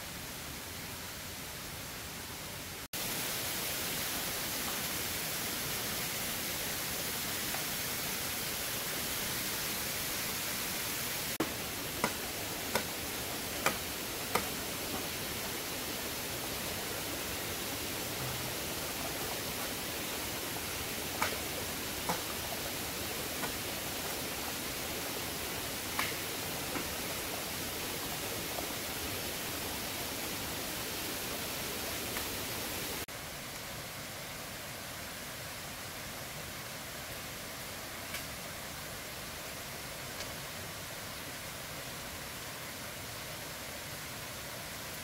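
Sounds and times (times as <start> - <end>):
waterfall rushing: 2.9 - 33.1.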